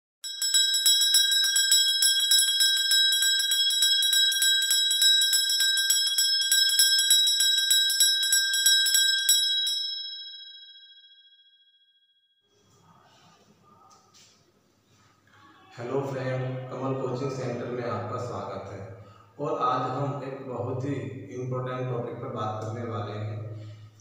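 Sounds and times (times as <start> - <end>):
bell struck rapidly: 0.2 - 10.8.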